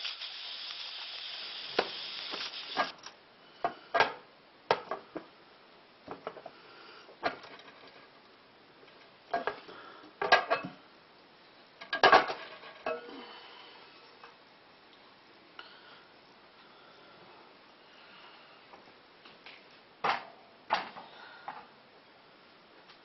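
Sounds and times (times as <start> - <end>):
short hiss: 0.0 - 3.1.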